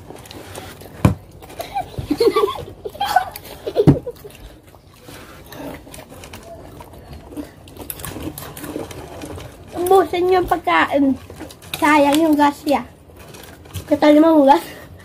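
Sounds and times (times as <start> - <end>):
children's voices and giggles: 1.6 - 4.3.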